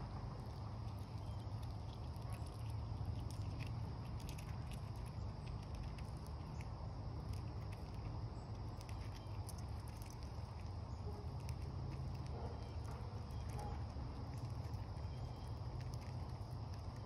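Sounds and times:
chipmunk cracking seed shells: 0.0s - 17.0s
steady low rumble: 0.0s - 17.0s.

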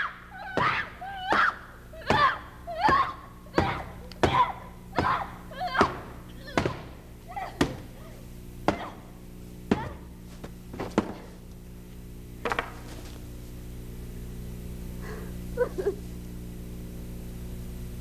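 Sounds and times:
wooden staff whacking: 8.7s - 9.1s, 9.7s - 11.4s.

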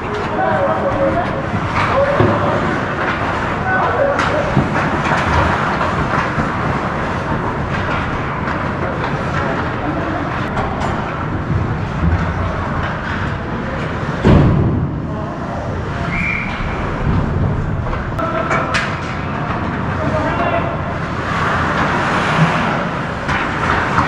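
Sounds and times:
rumbling hiss of skates: 21.0s - 24.0s.

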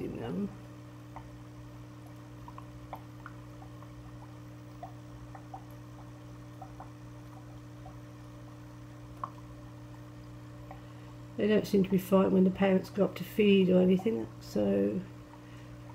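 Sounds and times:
aquarium filter humming: 0.0s - 15.9s
water bubbling: 0.8s - 12.2s
water dripping: 1.0s - 12.0s.

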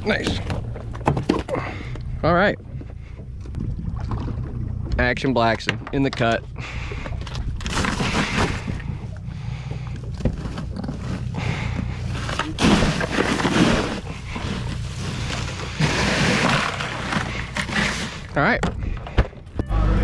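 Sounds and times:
steady low rumble: 0.0s - 20.0s
crushed ice crunching: 7.6s - 8.9s, 10.3s - 18.4s.

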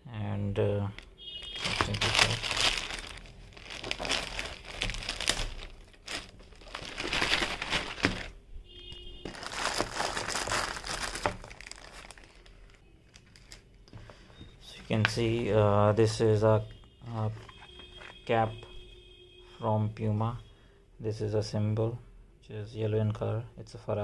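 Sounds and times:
plastic bag crinkling: 1.0s - 8.4s, 9.2s - 13.7s.

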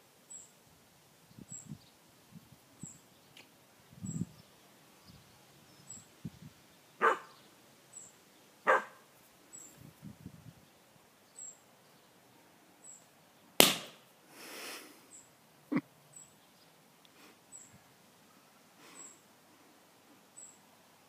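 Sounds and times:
puppy barking: 7.0s - 7.4s, 8.7s - 9.0s.

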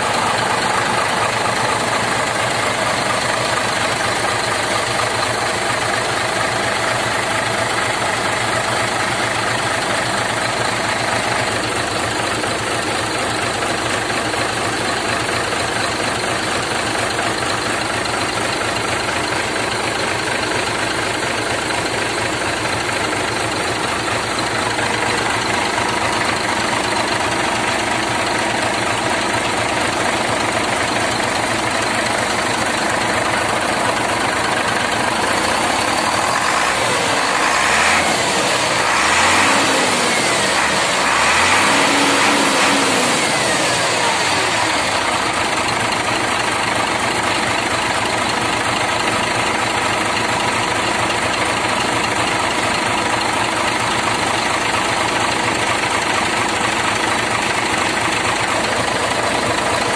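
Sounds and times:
diesel truck engine idling: 0.0s - 59.9s
turbocharger whine: 34.8s - 45.8s.

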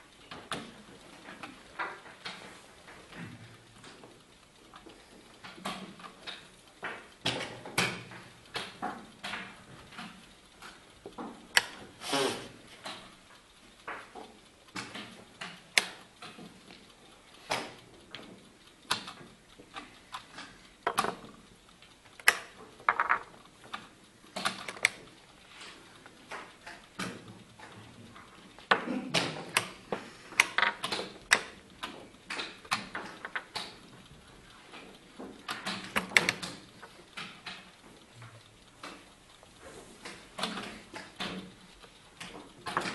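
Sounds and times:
chess pieces knocking on board: 20.8s - 21.3s, 22.9s - 23.4s, 30.5s - 30.9s.

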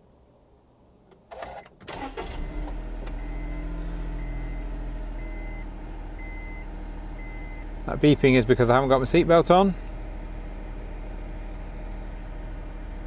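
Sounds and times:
car engine starting and idling: 1.1s - 13.0s
seatbelt warning chime beeps: 1.5s - 7.7s.

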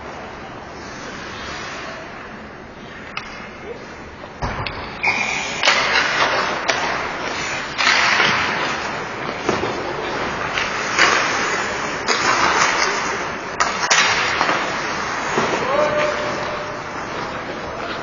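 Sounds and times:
skate blades scraping ice: 0.8s - 2.2s, 5.0s - 18.0s
sticks clacking on puck: 4.6s - 18.0s.

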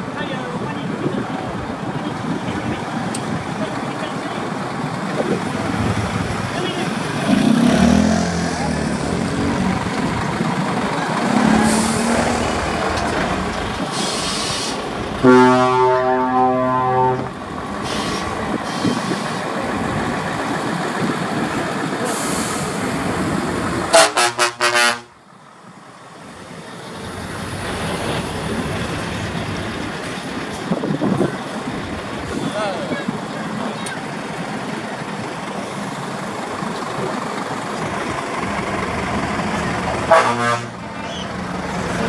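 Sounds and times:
truck diesel engines: 0.0s - 42.0s
short horn toots: 15.2s - 17.3s, 40.1s - 40.8s
air horn: 15.2s - 17.4s, 23.9s - 25.1s, 40.1s - 40.8s.

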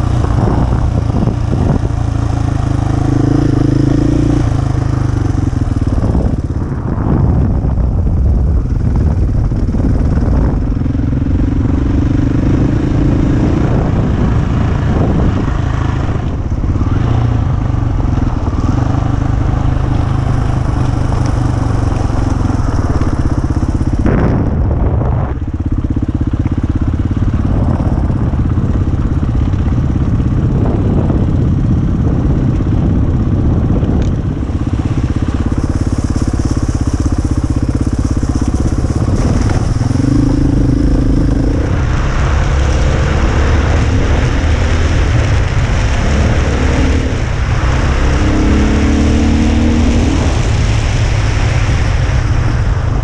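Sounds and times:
dirt bike engine revving: 0.0s - 6.2s, 34.6s - 51.0s
wind or road noise hiss: 0.0s - 10.6s, 11.6s - 31.2s, 32.2s - 53.0s.

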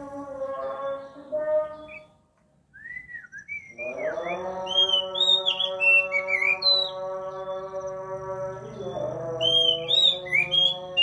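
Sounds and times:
bird singing whistled notes: 1.7s - 7.6s, 8.8s - 11.0s.

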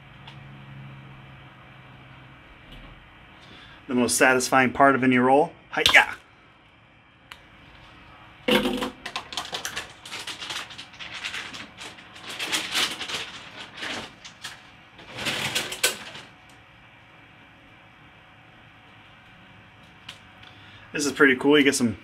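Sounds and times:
plastic packaging crinkling: 8.5s - 16.3s.

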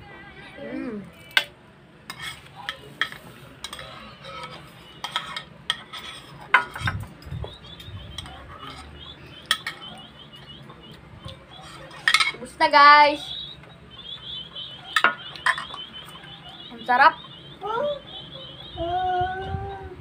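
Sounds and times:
spoons clinking on ceramic bowls: 2.1s - 7.1s, 8.2s - 12.5s, 14.8s - 16.6s.

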